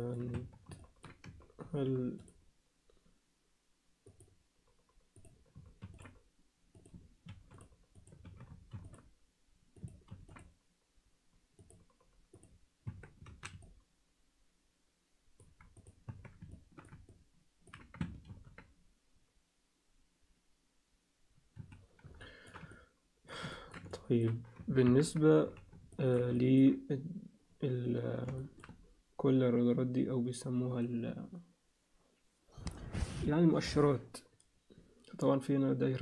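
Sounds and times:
computer mouse clicking: 0.1 - 2.4, 4.0 - 9.1, 9.7 - 10.6, 11.6 - 13.9, 15.4 - 18.8, 21.5 - 26.4, 28.2 - 28.9.

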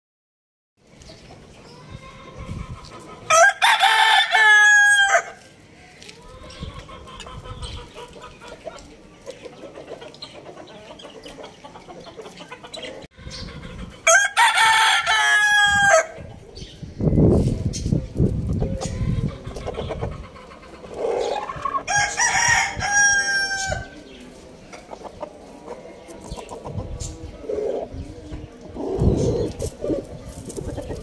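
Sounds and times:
rooster crowing: 3.3 - 5.4, 14.1 - 16.1, 21.9 - 23.9.

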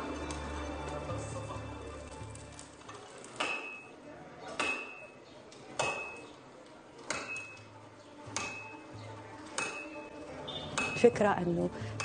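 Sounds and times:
hammer striking metal: 4.6 - 5.1, 5.8 - 6.2, 8.3 - 8.8, 9.6 - 10.1, 10.7 - 11.1.

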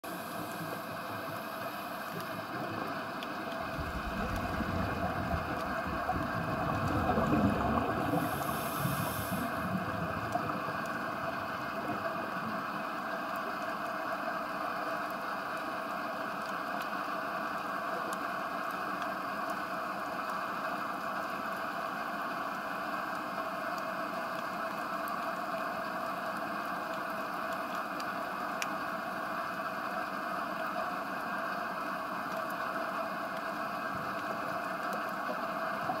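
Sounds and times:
underwater hiss: 0.0 - 2.6, 6.4 - 10.4
swirl of water movement: 0.0 - 13.5
faint clicks: 33.3 - 36.0.

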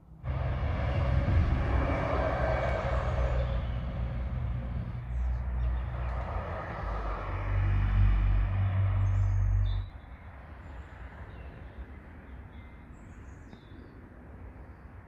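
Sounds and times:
low rumble of road traffic: 0.0 - 15.0
small birds chirping: 9.0 - 14.0.

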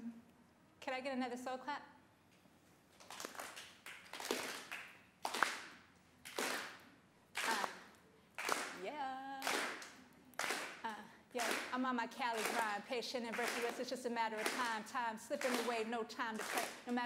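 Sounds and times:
audience clapping slow beat: 2.9 - 8.8, 9.4 - 11.8, 12.4 - 13.8, 14.4 - 14.8, 15.4 - 15.8, 16.4 - 17.0.

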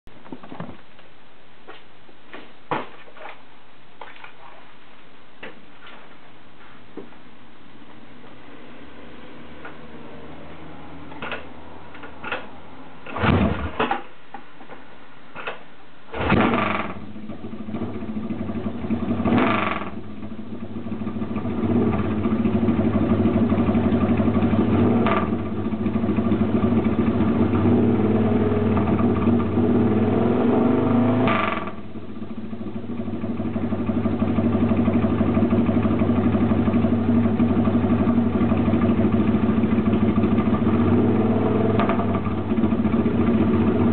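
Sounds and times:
motorcycle engine starting and revving: 11.1 - 14.0, 16.1 - 43.9.

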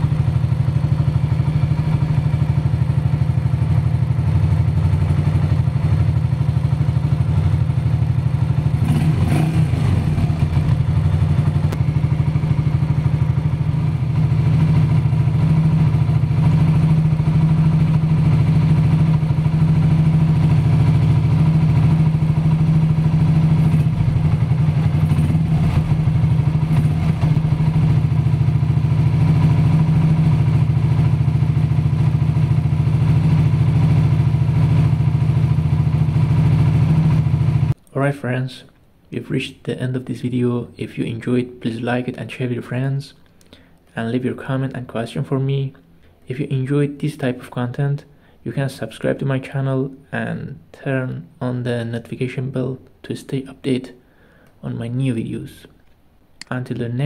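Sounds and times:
motorcycle engine idling: 0.0 - 37.8.

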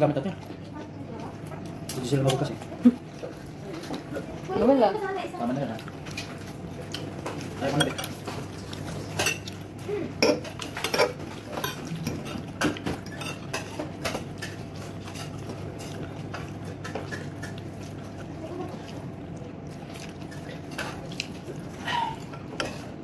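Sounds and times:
low steady hum: 0.0 - 23.0.

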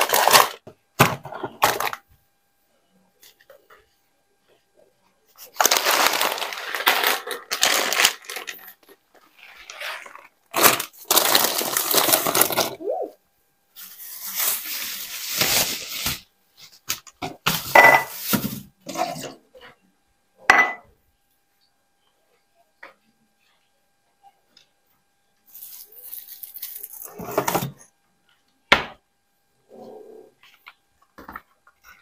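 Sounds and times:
plastic bags rustling: 0.0 - 0.6, 5.4 - 12.9, 13.8 - 16.3.

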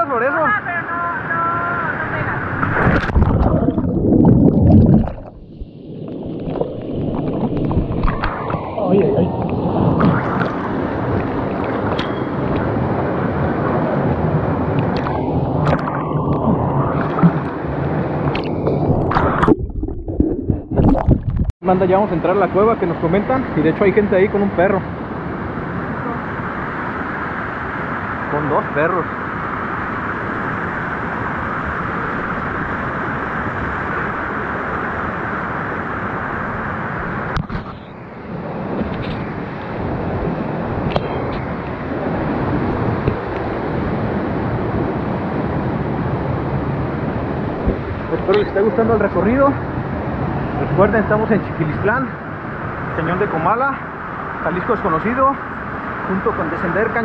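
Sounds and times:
river water rushing: 1.9 - 19.5.

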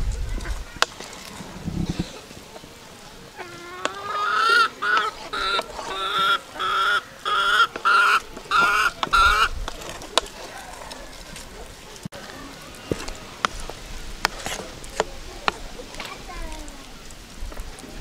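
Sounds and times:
hen cackling: 3.3 - 9.6.

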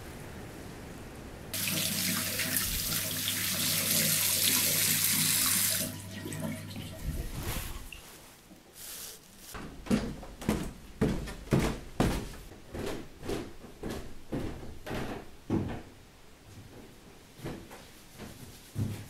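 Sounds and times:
knocks and thuds: 9.6 - 13.0, 13.8 - 16.0.

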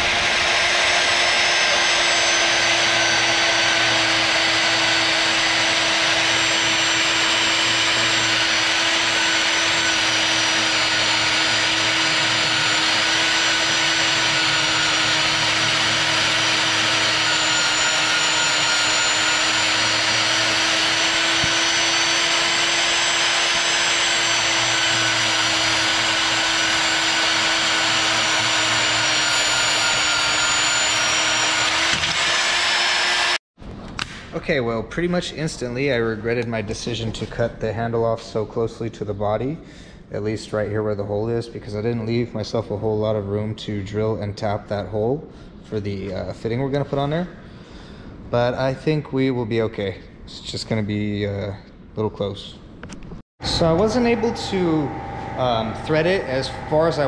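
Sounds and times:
band saw cutting metal: 0.0 - 33.4, 53.4 - 57.0.

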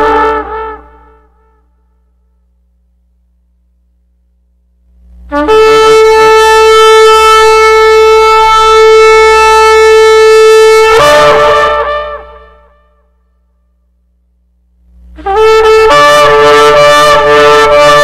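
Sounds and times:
shofar blast: 0.0 - 2.4, 5.3 - 13.7, 15.2 - 18.0.

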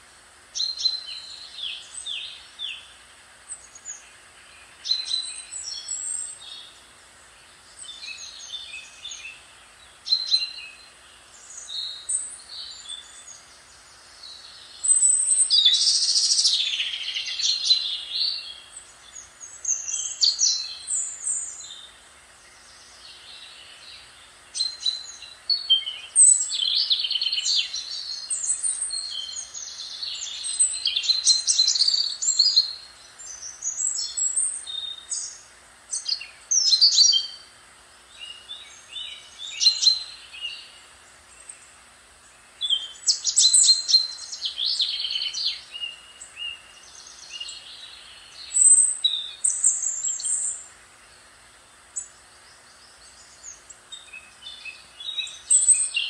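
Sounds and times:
songbirds chirping and trilling: 0.0 - 56.0.

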